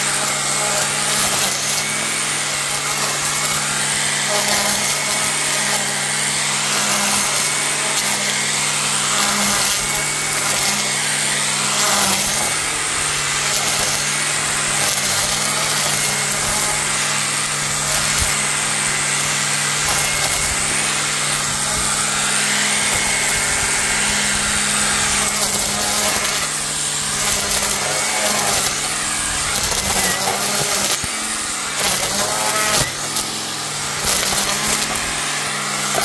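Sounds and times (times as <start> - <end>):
string trimmer motor humming: 0.0 - 36.0
trimmer head swishing through weeds: 0.0 - 36.0
trimmer striking thick stems: 0.0 - 36.0.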